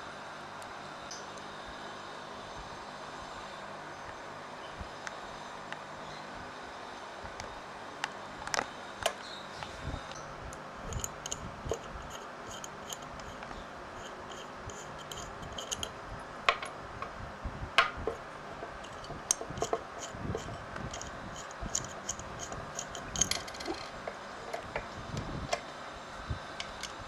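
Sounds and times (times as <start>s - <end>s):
metal parts clicking: 10.9s - 13.4s, 14.0s - 16.0s, 18.8s - 24.7s.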